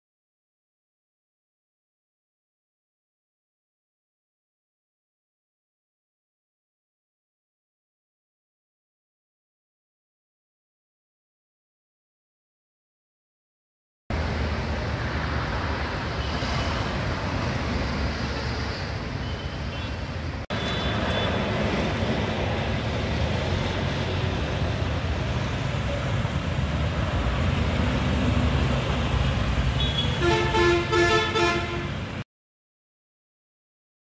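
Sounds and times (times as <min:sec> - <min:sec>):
road traffic rumble: 0:14.1 - 0:32.2
vehicle horn honks: 0:20.5 - 0:21.4, 0:29.8 - 0:32.0.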